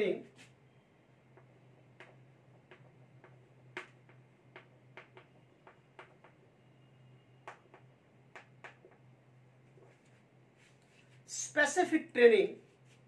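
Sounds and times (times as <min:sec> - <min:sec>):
faint low hum: 0:00.0 - 0:13.0
chalk tapping on blackboard: 0:01.4 - 0:06.4, 0:07.4 - 0:09.0.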